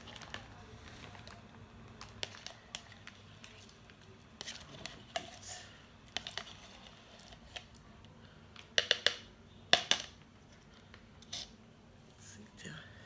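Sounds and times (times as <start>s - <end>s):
plastic objects clicking and tapping: 8.5s - 11.0s.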